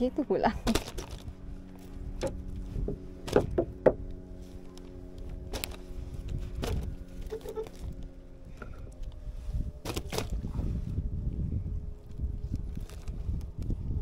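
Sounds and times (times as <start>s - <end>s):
boat engine idling: 0.0s - 10.4s
knocks and clicks of gear: 2.2s - 9.2s.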